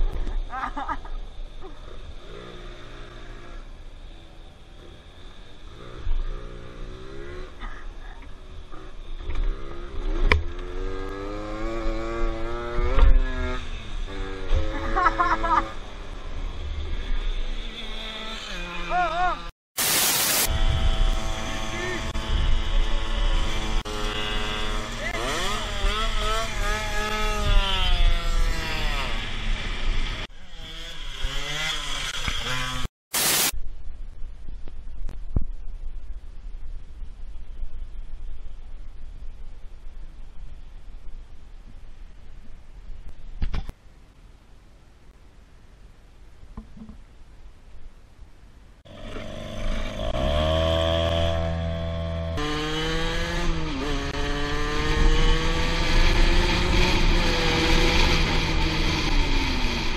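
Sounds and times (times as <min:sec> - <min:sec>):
scooter engine revving: 0:20.4 - 0:32.9, 0:48.9 - 0:59.9
low wind rumble: 0:20.5 - 0:24.9, 0:33.6 - 0:59.9.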